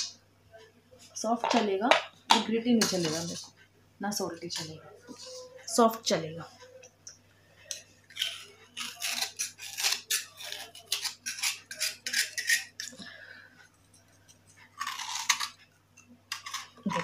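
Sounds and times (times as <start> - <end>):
knife scraping clay: 8.1 - 13.0.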